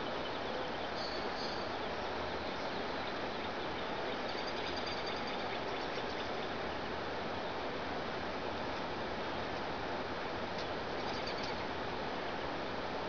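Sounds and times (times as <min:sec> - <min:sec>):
faint high chirps: 0:00.0 - 0:01.8.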